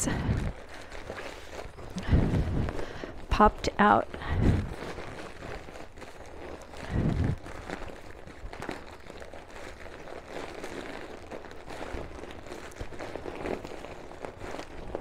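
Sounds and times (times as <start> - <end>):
vinyl crinkling and rustling: 0.0 - 15.0.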